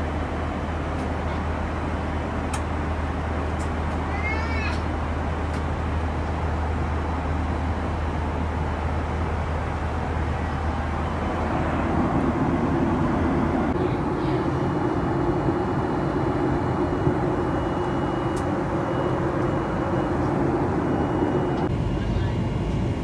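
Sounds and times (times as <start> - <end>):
jet engines and airflow rush: 0.0 - 23.0.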